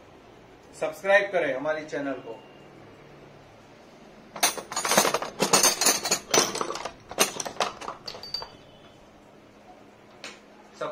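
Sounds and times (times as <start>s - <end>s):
wrenches clinking together: 4.4s - 9.0s.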